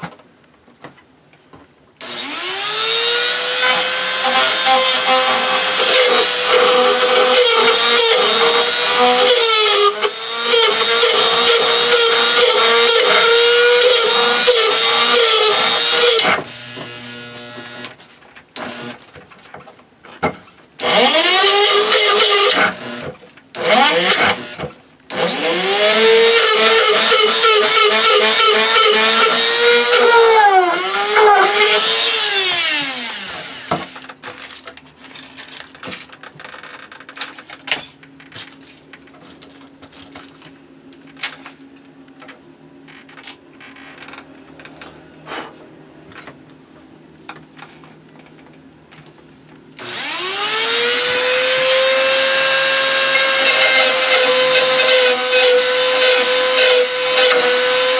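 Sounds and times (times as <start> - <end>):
rotary tool whining: 2.0 - 18.0, 20.8 - 34.1, 49.8 - 57.9.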